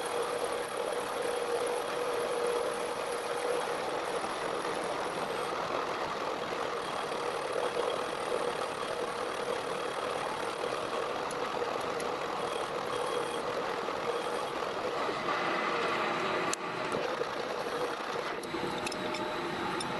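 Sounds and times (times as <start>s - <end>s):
constant hum: 0.0s - 19.9s
metal lathe cutting steel: 6.3s - 19.9s.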